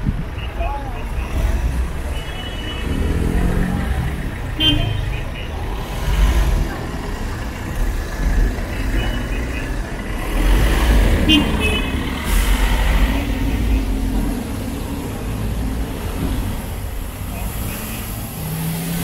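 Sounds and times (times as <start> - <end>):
vehicle engines passing: 0.0 - 19.0
tyres hissing on wet road: 9.8 - 19.0.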